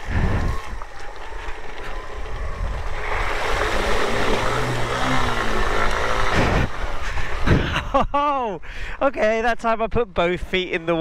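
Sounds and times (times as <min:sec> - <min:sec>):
water splashing and rushing: 0:00.0 - 0:07.7
motorcycle engine running: 0:00.0 - 0:08.3.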